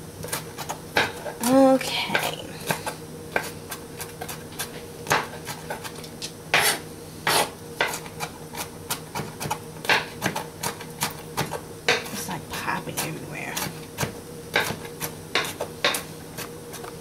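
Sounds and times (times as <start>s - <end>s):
faint steady hum: 0.0s - 17.0s
knife chopping on cutting board: 0.2s - 1.4s, 2.1s - 12.2s, 13.0s - 16.9s
knife scraping board: 2.1s - 12.2s.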